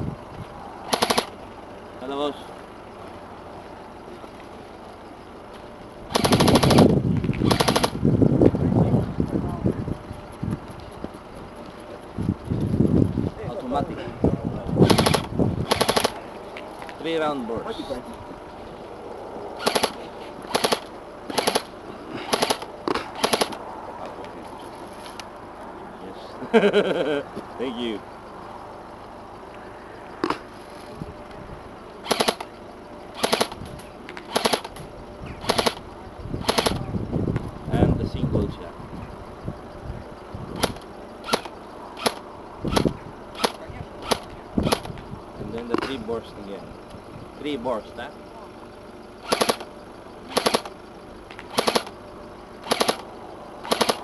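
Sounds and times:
airsoft rifle firing bursts: 0.9s - 1.3s, 6.1s - 8.0s, 14.8s - 16.2s, 19.6s - 21.7s, 22.3s - 23.6s, 32.0s - 32.4s, 33.2s - 33.6s, 34.3s - 34.7s, 35.4s - 35.8s, 36.4s - 36.8s, 49.2s - 49.6s, 50.3s - 50.7s, 51.5s - 51.9s, 52.6s - 53.0s, 53.7s - 54.0s.

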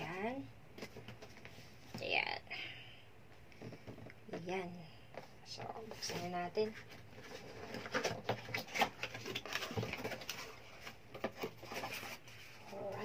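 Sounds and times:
cardboard box being opened: 6.0s - 13.0s.

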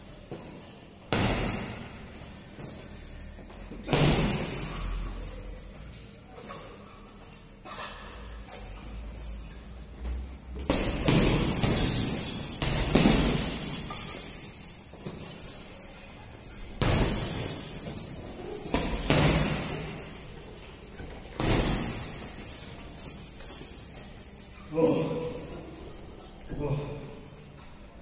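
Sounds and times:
chains jangling: 0.0s - 28.0s
gloves hitting punching bag: 1.1s - 2.0s, 3.8s - 4.8s, 10.6s - 14.1s, 16.8s - 18.0s, 18.6s - 20.0s, 21.4s - 22.2s.

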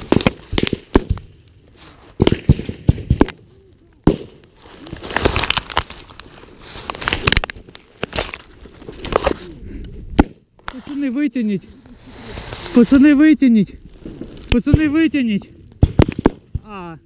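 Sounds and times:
sharp cracks: 0.0s - 9.4s, 14.2s - 16.8s.

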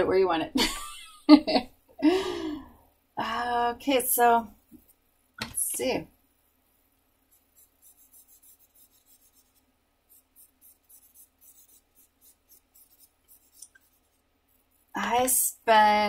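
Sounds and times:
charcoal scratching on paper: 7.3s - 15.0s.

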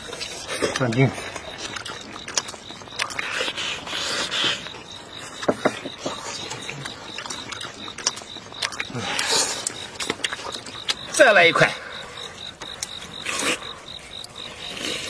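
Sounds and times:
lip smacks: 0.0s - 11.2s
wet chewing: 0.0s - 15.0s.

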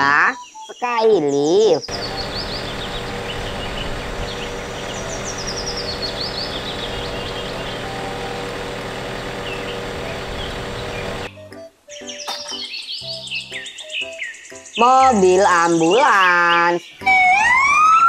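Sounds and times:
small birds chirping: 0.0s - 18.0s
aerial work platform humming: 1.9s - 11.3s.

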